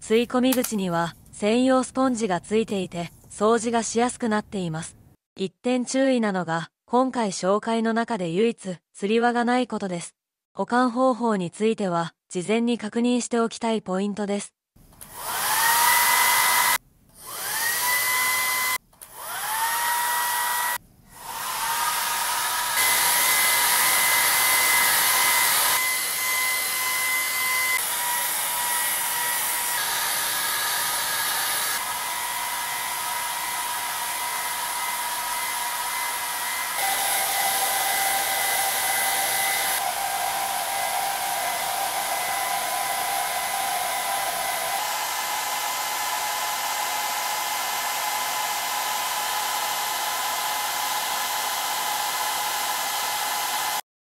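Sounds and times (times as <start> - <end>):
hair dryer running: 15.0 - 53.9.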